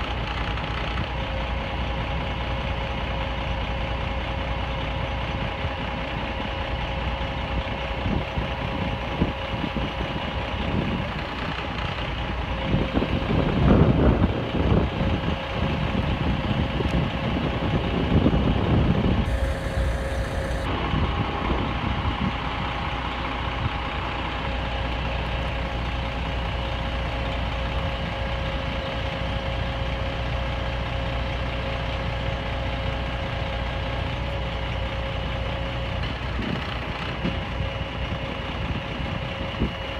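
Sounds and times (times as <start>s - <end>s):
fire truck engine running: 0.0s - 39.9s
hydraulic whine: 19.2s - 22.8s.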